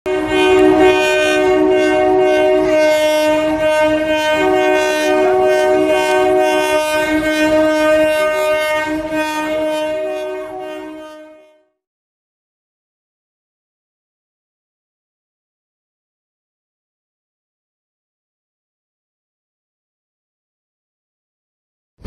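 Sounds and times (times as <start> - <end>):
train running noise: 0.1 - 11.4
train horn chord: 0.1 - 11.8.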